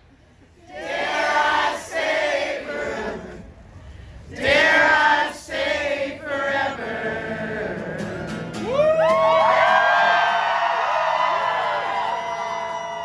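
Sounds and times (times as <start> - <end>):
crowd singing: 0.6 - 8.6
acoustic guitar: 7.2 - 9.9
crowd cheering whoop: 8.6 - 13.0.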